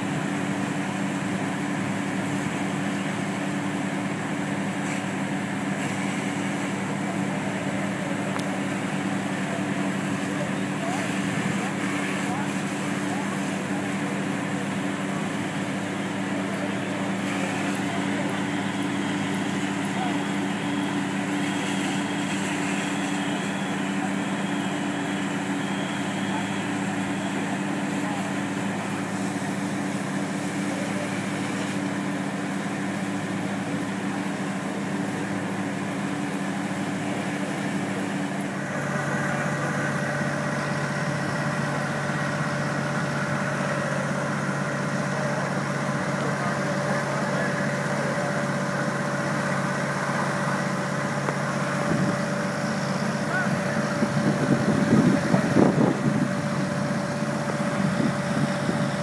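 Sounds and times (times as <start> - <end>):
diesel engines droning: 0.0 - 59.0.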